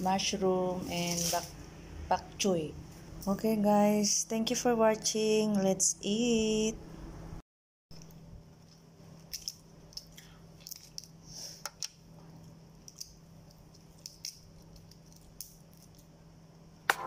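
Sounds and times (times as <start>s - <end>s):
low steady hum: 0.0s - 17.0s
prawn shell crackling as peeled: 8.6s - 11.2s, 11.8s - 16.2s.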